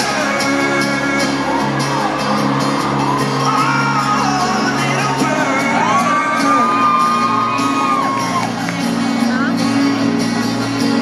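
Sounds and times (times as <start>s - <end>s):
singer holding long notes: 0.0s - 8.7s
crowd whooping: 0.0s - 9.0s
pop band with guitars: 0.0s - 11.0s.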